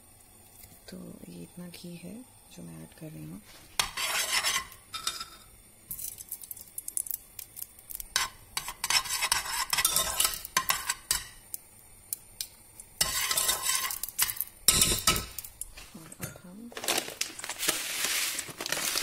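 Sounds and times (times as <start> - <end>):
ghee sizzling: 0.0 - 19.0
spoon scraping in metal pot: 3.8 - 5.5, 8.1 - 11.4, 13.0 - 15.4.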